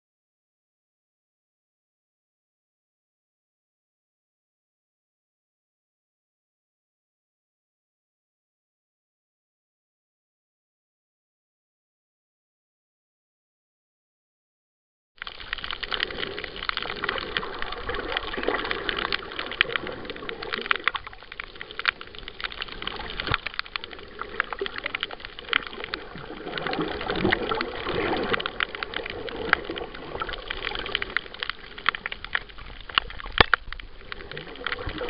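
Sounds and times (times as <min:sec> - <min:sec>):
underwater crackle of clicks: 0:15.2 - 0:35.0.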